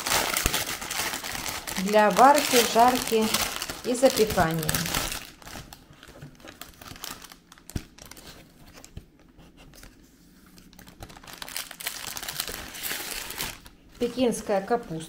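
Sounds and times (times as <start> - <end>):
packaging crinkling and rustling: 0.0 - 15.0.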